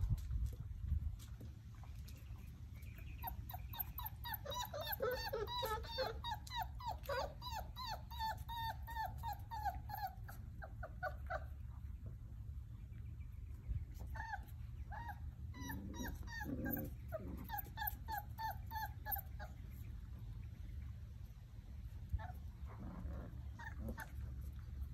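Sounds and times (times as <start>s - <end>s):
puppy whimpering: 3.1s - 11.6s, 14.0s - 19.8s, 22.1s - 24.6s
dog growl: 15.6s - 17.9s, 22.6s - 24.3s.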